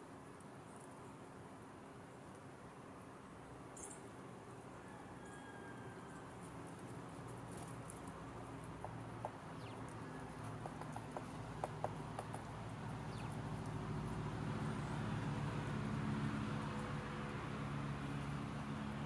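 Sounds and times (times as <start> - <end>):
woodpecker tapping: 8.6 - 13.8.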